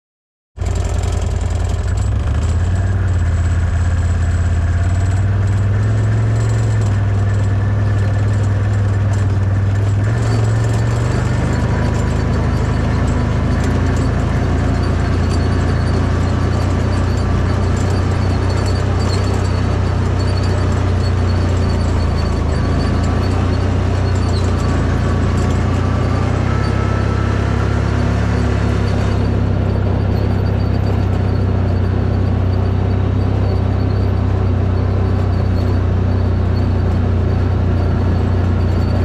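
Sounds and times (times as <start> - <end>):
off-road buggy engine droning: 0.6 - 39.0.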